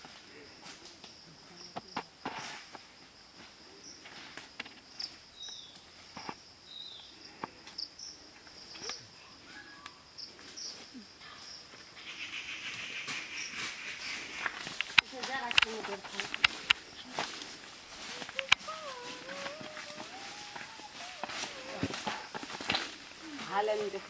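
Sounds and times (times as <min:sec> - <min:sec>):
high insect drone: 0:00.0 - 0:24.0
high rustling hiss: 0:00.0 - 0:24.0
bird chirps: 0:11.4 - 0:14.6.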